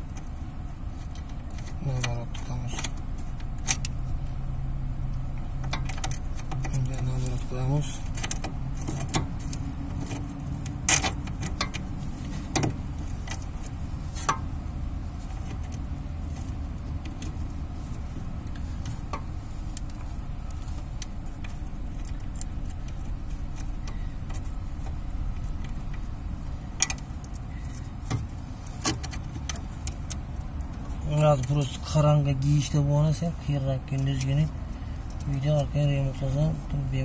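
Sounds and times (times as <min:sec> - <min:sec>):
steady low rumble: 0:00.0 - 0:37.0
sharp metallic clinks: 0:19.5 - 0:20.3.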